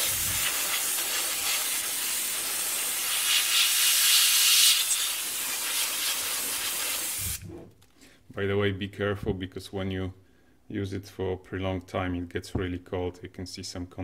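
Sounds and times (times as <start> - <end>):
compressed air spraying hiss: 0.0 - 7.4.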